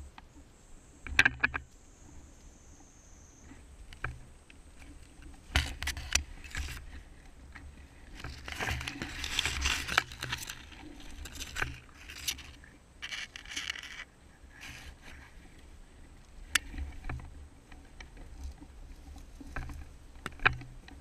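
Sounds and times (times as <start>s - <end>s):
leaves and grass rustling: 1.6s - 21.0s
footsteps in undergrowth: 7.8s - 14.0s
twigs snapping: 8.2s - 14.0s.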